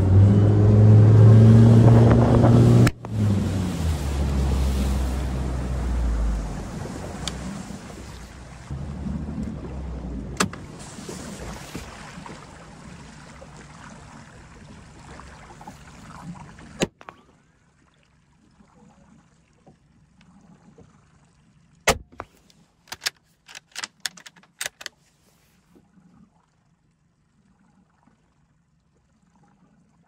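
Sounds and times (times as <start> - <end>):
wind and water rushing: 0.0 - 16.9
water trickling against hull: 3.0 - 30.0
sharp click: 22.9 - 24.9.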